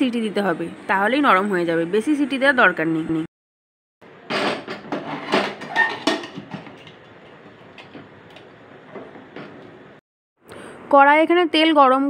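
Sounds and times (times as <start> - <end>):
metal lid clattering on rim: 4.3 - 8.0.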